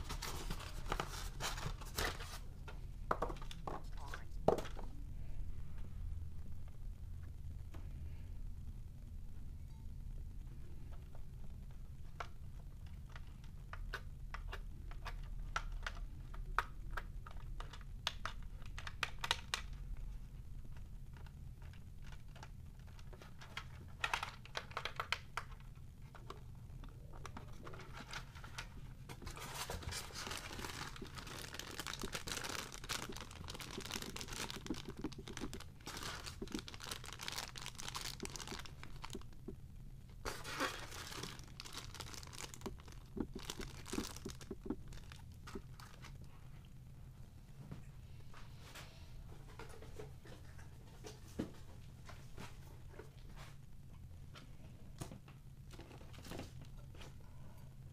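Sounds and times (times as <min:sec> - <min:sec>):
plastic bag crinkling: 0:27.8 - 0:39.5, 0:40.2 - 0:46.2.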